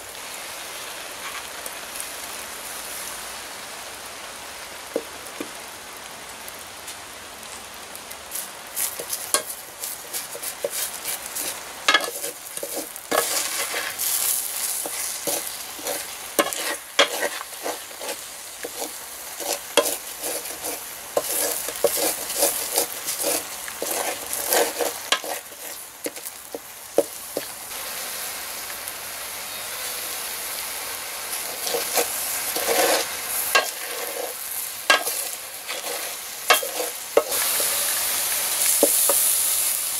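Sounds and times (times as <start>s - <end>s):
food sizzling in hot oil: 0.0s - 39.9s
wooden spatula scraping pan: 8.8s - 27.5s, 31.3s - 37.9s, 38.7s - 39.3s.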